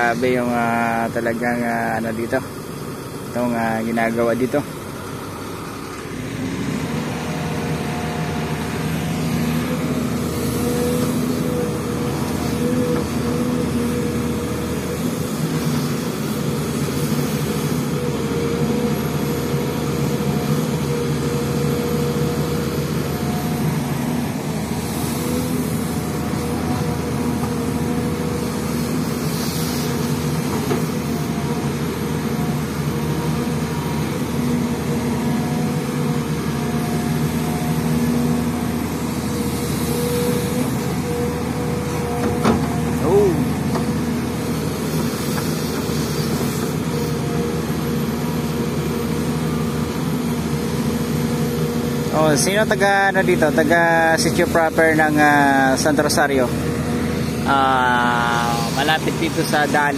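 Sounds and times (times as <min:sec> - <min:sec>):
excavator diesel engine droning: 0:00.0 - 0:59.9
hiss: 0:15.0 - 0:18.0, 0:28.4 - 0:31.3, 0:44.8 - 0:47.2, 0:58.1 - 0:59.6.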